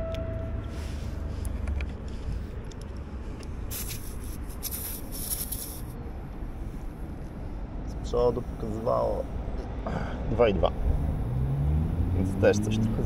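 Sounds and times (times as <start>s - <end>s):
compressed air hissing: 3.7s - 6.0s.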